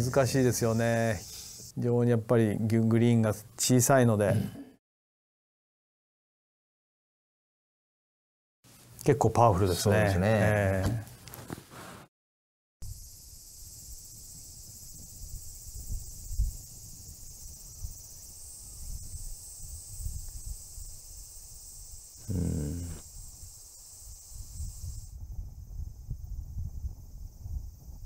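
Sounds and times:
insect chorus: 0.0s - 1.7s, 12.8s - 28.0s
wind rumble on microphone: 14.3s - 21.1s, 24.3s - 28.0s
short low voice-like sound: 22.2s - 23.0s.

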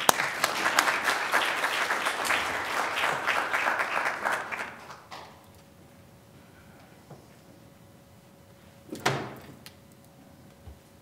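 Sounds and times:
audience applauding: 0.0s - 5.4s.

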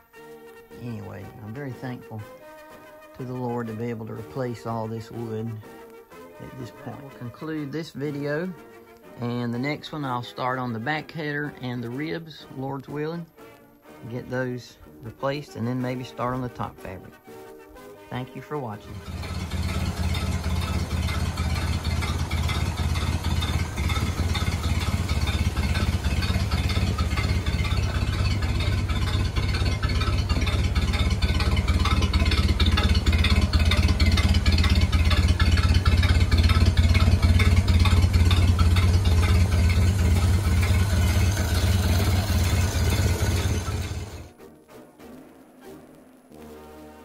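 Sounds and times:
car engine idling: 18.9s - 44.3s.

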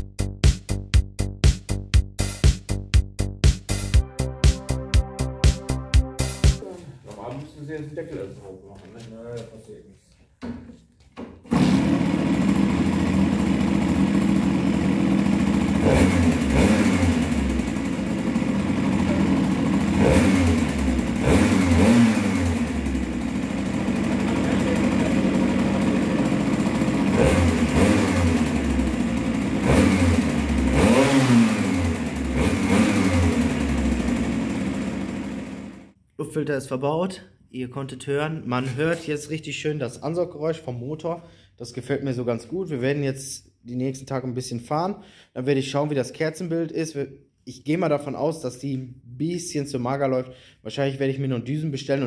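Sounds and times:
moped engine revving: 11.5s - 36.0s.

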